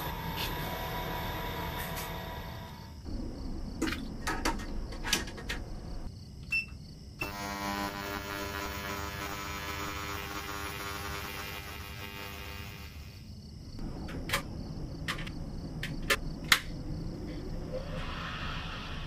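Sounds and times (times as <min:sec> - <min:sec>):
ultrasonic cleaner buzzing hum: 0:07.2 - 0:13.2.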